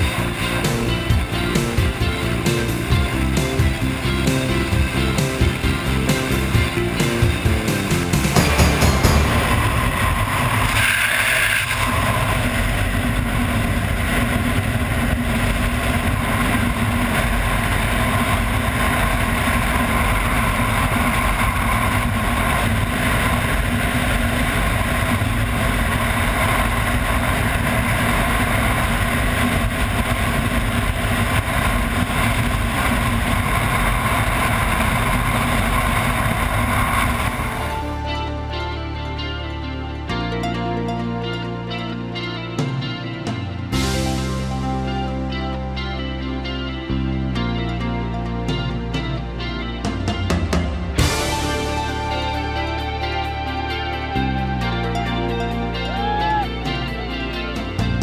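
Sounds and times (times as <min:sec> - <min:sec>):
wind rushing over microphone: 0:09.2 - 0:38.0.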